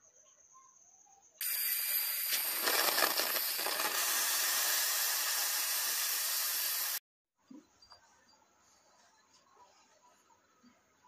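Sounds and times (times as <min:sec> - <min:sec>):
forge flames rushing hiss: 0:01.4 - 0:07.0.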